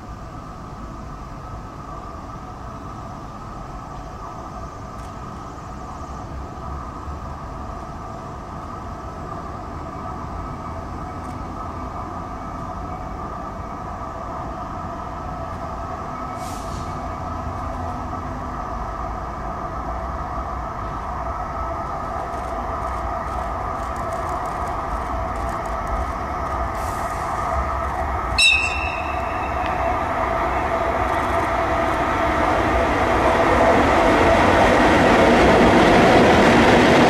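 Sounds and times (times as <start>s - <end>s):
train rumbling along track: 0.0s - 37.0s
short hiss: 16.4s - 17.0s.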